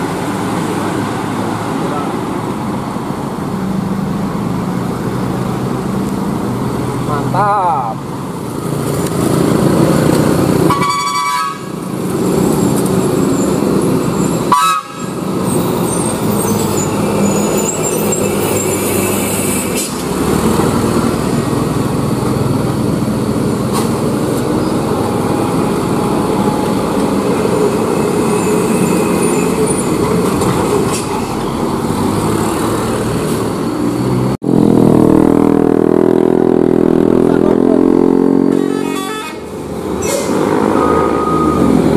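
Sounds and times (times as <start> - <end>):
truck engines passing: 0.0 - 41.9
horn toots: 10.7 - 11.8, 14.4 - 15.2, 38.3 - 41.8
motorcycle engines passing: 31.7 - 41.9.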